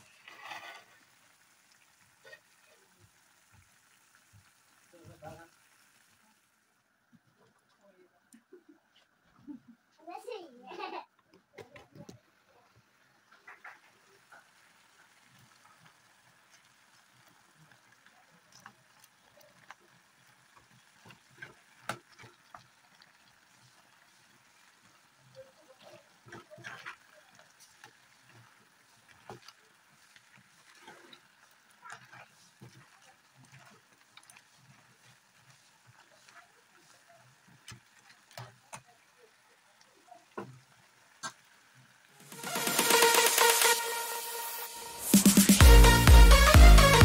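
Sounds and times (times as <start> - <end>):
metal spoon scraping a steel pan: 0.2 - 0.9.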